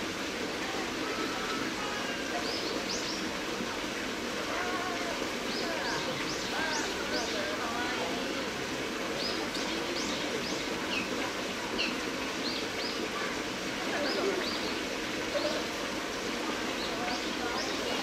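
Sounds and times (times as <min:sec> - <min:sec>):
steady background noise: 0:00.0 - 0:18.0
small birds chirping: 0:09.1 - 0:13.3, 0:13.9 - 0:15.7.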